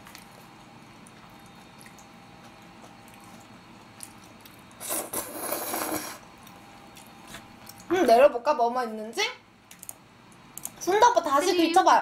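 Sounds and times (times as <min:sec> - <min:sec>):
loud noodle slurp: 0:04.8 - 0:06.2.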